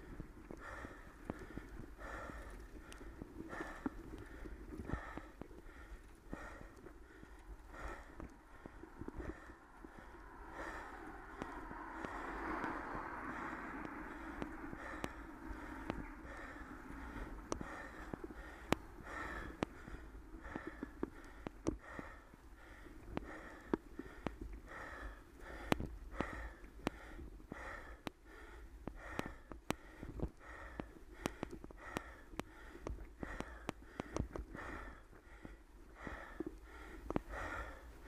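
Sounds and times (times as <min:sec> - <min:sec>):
cyclist breathing hard: 0:00.0 - 0:38.0.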